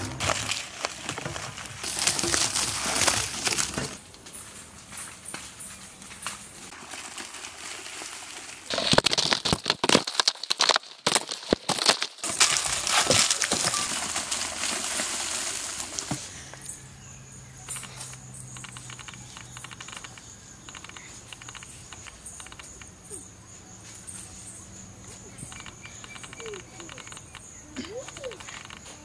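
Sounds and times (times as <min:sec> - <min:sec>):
wrapped chocolate bars crinkling: 0:00.2 - 0:04.0, 0:06.7 - 0:16.2.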